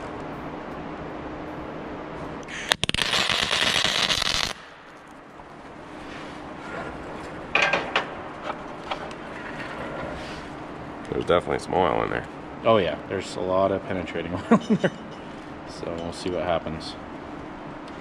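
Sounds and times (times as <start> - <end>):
welding arc crackling: 2.4 - 5.9.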